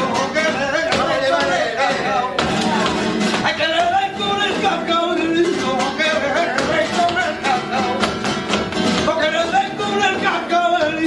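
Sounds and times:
acoustic guitar: 0.0s - 11.0s
man singing ornamented line: 3.4s - 8.2s, 9.0s - 11.0s.

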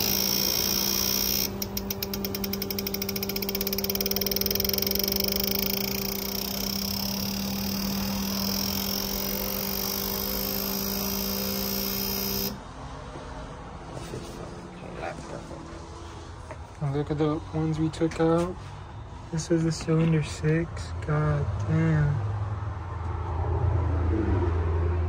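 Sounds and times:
rapid even ticking: 0.0s - 12.6s
low mechanical hum: 0.0s - 25.0s.

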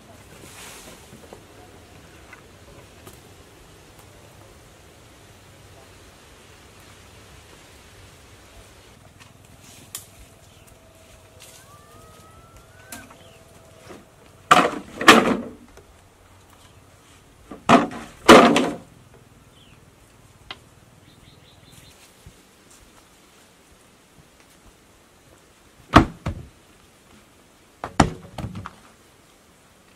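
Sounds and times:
bamboo poles knocking on pile: 13.8s - 15.8s, 17.5s - 18.9s, 27.8s - 28.8s.

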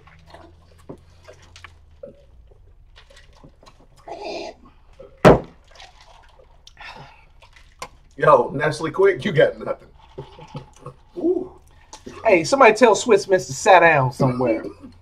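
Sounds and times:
slurping through a straw: 0.0s - 8.2s, 9.6s - 12.4s
swallowing: 0.0s - 8.2s, 9.8s - 12.4s.

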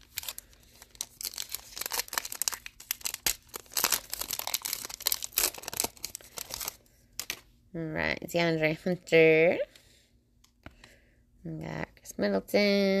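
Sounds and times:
foil wrapper crinkling and tearing: 0.0s - 7.4s.

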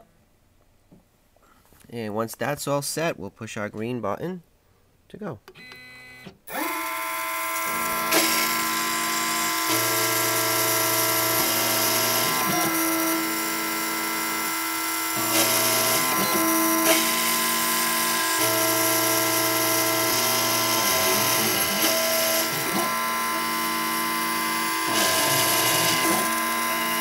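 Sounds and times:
motor hum: 6.5s - 27.0s.

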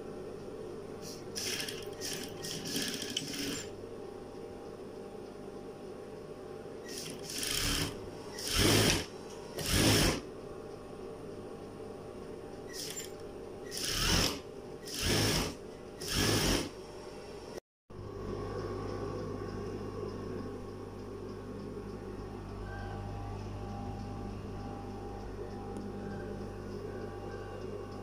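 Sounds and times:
steady low hum: 0.0s - 3.0s, 3.6s - 28.0s
sewing machine stitching: 1.4s - 3.7s, 6.9s - 10.2s, 13.7s - 16.7s.

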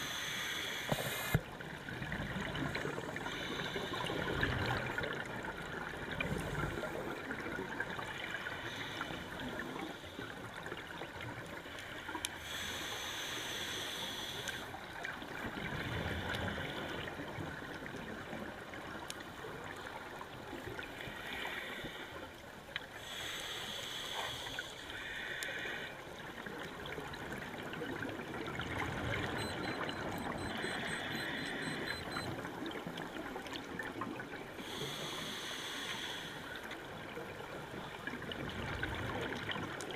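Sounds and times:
regulator inhalation hiss: 0.0s - 1.4s, 12.4s - 14.6s, 23.0s - 25.9s, 34.6s - 36.4s.

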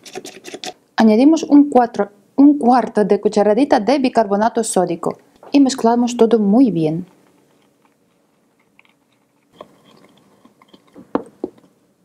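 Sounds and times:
whisk scraping ceramic bowl: 0.0s - 0.8s.

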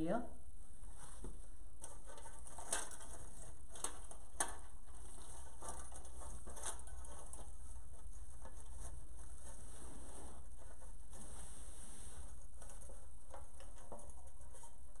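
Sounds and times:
mesh rustling and crinkling: 0.7s - 15.0s
scattered crackles and clicks: 1.2s - 9.7s, 12.2s - 15.0s.

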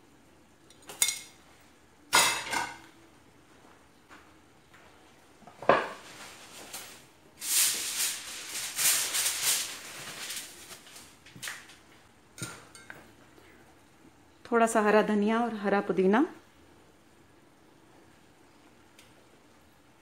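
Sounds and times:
rustling shaking noise: 6.0s - 11.9s.

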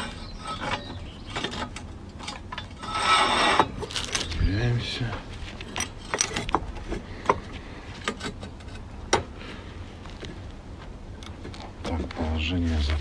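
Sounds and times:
metallic clinks and knocks: 5.6s - 7.4s.

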